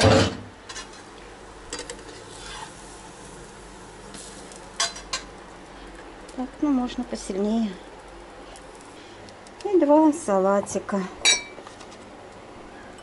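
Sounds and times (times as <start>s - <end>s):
faint frying sizzle: 0.5s - 13.0s
spatula scraping a frying pan: 2.0s - 2.9s.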